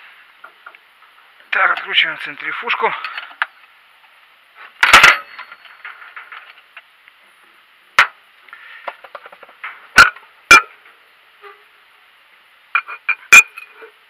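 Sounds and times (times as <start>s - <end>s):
loud metal clang: 4.8s - 6.2s, 9.9s - 10.8s
sharp metal knocks: 4.8s - 6.4s, 10.0s - 10.8s
spanners clanking on metal: 4.8s - 6.6s, 12.8s - 13.9s.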